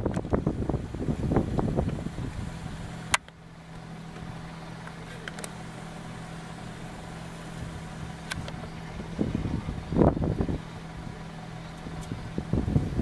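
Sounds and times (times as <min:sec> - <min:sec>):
wind buffeting microphone: 0:00.0 - 0:03.2, 0:06.7 - 0:13.0
suv engine idling: 0:00.0 - 0:13.0.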